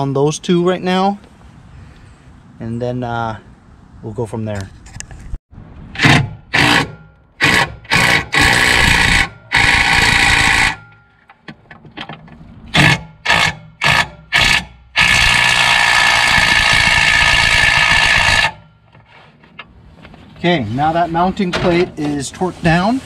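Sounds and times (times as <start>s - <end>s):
cordless driver spinning: 13.3s - 18.6s.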